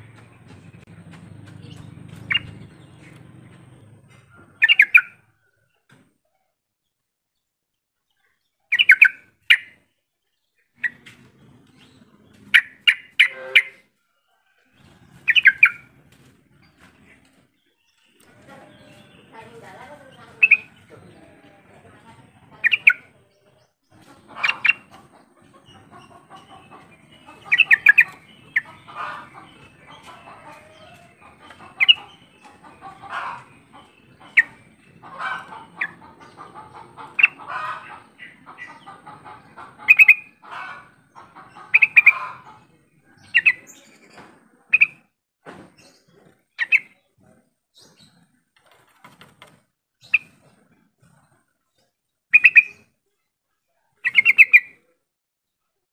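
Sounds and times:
bird chirping: 0.0s - 13.8s, 14.9s - 45.1s, 45.7s - 49.2s, 50.0s - 53.3s, 54.0s - 54.9s
soft bubbling bird chatter: 22.3s - 45.0s, 50.0s - 55.0s.

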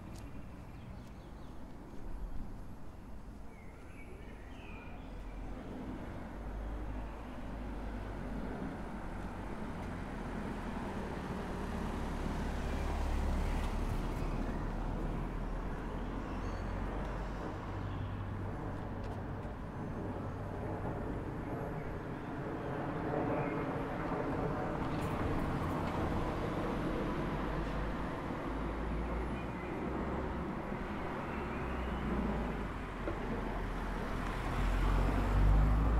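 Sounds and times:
low traffic rumble: 0.0s - 35.9s
car driving past: 33.6s - 35.9s.

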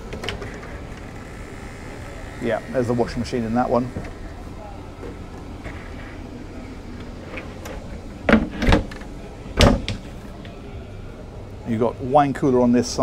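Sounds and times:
steady low hum: 0.0s - 13.0s
metal cupboard doors knocking shut: 8.3s - 9.0s, 9.6s - 10.1s.

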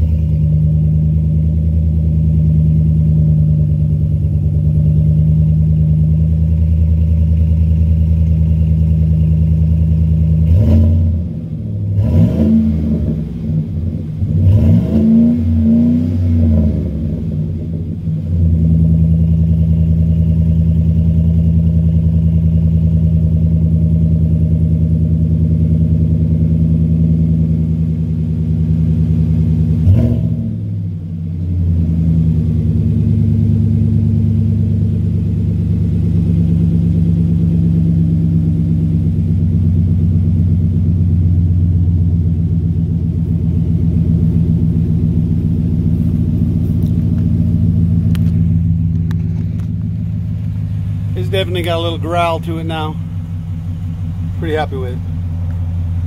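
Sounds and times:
truck engine idling: 0.0s - 10.5s, 30.8s - 56.0s
engine revving: 0.0s - 28.0s, 28.6s - 56.0s.

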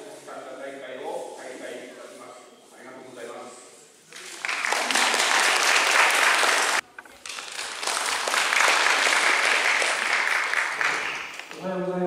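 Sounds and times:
audience applauding: 4.2s - 11.6s.

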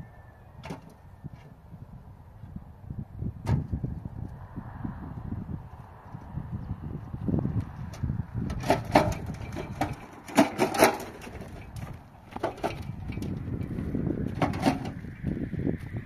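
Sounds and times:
wheelbarrow wheel rumbling on dirt: 7.5s - 15.4s
concrete blocks clanking on metal: 8.5s - 15.0s.

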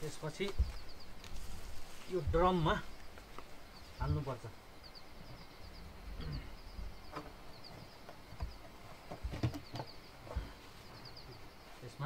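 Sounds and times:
small birds chirping: 0.0s - 12.0s
plastic drum knocks and thuds: 8.4s - 10.5s.

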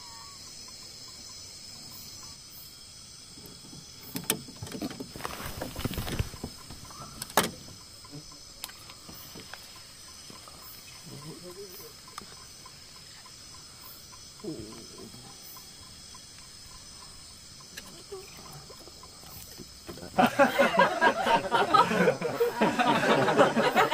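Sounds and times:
crickets shrilling: 0.0s - 23.9s
faint regular ticking: 6.4s - 19.8s.

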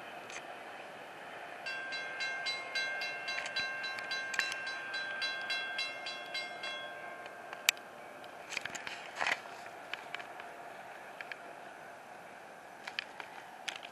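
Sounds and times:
crossing warning bell ringing: 1.6s - 8.4s.

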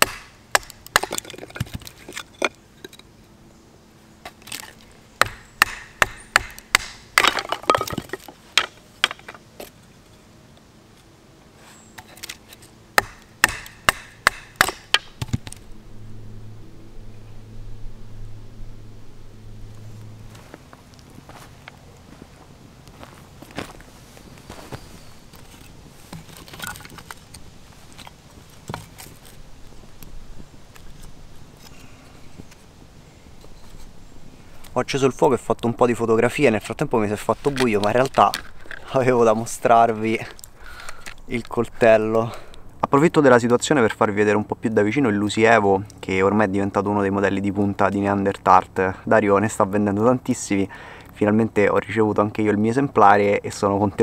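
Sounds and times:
wood fire crackling: 0.0s - 2.5s, 4.4s - 9.4s
wood cracking open: 0.0s - 3.1s, 4.2s - 9.8s, 25.3s - 29.4s, 37.0s - 41.6s.

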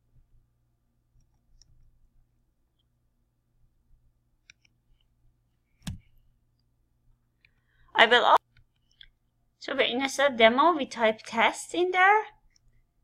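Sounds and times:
low steady hum: 0.0s - 13.0s
computer mouse clicks: 1.2s - 1.9s, 4.4s - 5.1s.

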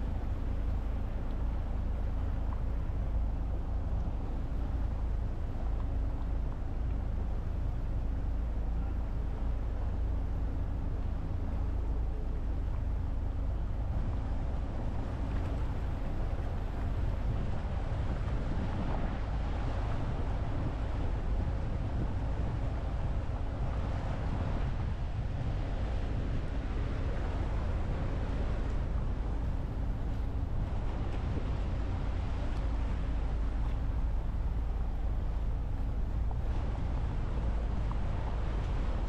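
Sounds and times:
motorboat engine rumble: 0.0s - 39.0s
water rushing along hull: 0.0s - 39.0s
wind on microphone: 13.7s - 39.0s.

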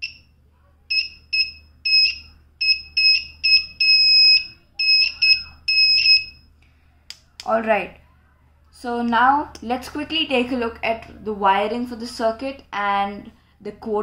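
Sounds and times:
buzzer beeps: 0.9s - 6.5s.

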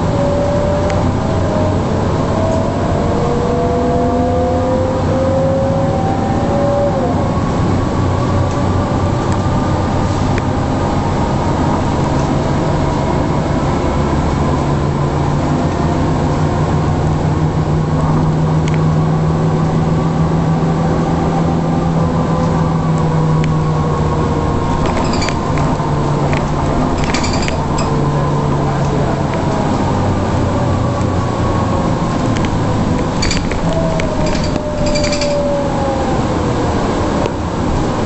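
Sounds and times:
bus diesel engine running: 7.1s - 38.0s
high whine falling in pitch: 16.8s - 38.0s
cabin fittings rattling: 24.8s - 25.7s, 26.9s - 28.0s, 33.2s - 35.4s.

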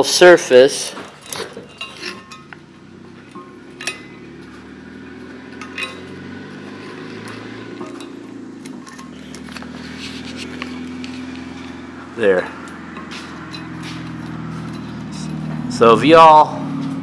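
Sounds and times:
metallic clinks and knocks: 1.0s - 12.0s, 12.6s - 15.7s
steady low hum: 1.0s - 17.0s.

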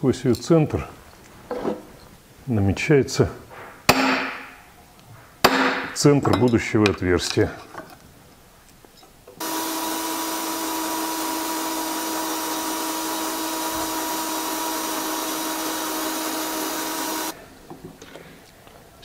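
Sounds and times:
drill whining through metal: 9.4s - 17.4s.

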